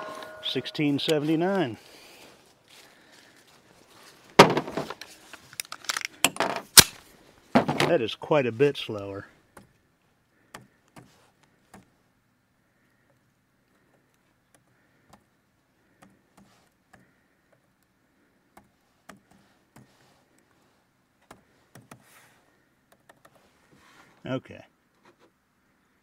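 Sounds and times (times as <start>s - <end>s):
faint clicks and ticks: 12.8s - 20.6s, 21.2s - 22.1s, 22.8s - 23.4s.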